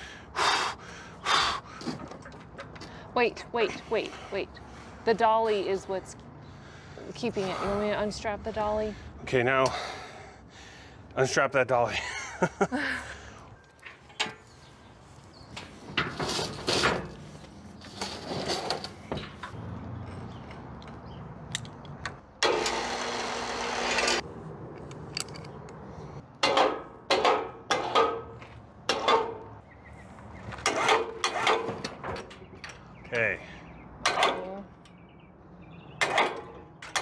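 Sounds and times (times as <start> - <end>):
electric winch motor running: 22.4 - 24.2.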